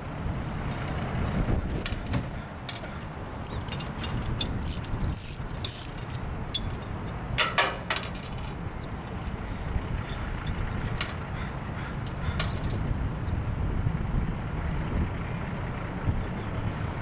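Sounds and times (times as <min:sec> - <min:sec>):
steady low rumble: 0:00.0 - 0:17.0
metal tools clinking: 0:03.4 - 0:09.4.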